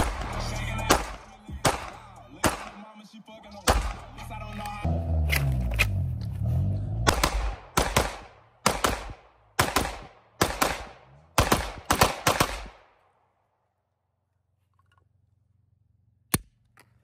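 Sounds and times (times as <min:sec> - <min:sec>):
music bass: 0:00.0 - 0:02.4
gunshots with echo: 0:00.0 - 0:03.0, 0:03.6 - 0:04.2, 0:07.0 - 0:12.9.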